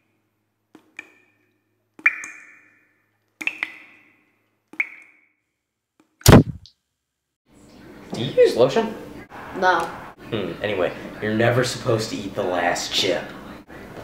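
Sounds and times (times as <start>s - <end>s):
hand slap to the head: 6.2s - 6.7s.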